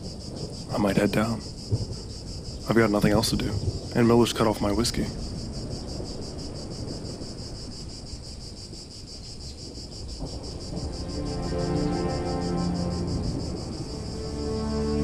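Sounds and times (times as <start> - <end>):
insects trilling: 0.0 - 15.0
soft film score music: 10.2 - 15.0.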